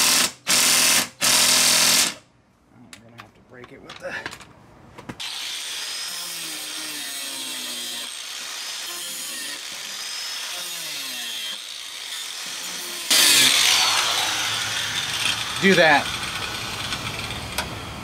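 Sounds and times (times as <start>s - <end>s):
angle grinder cutting plastic: 5.2s - 17.6s.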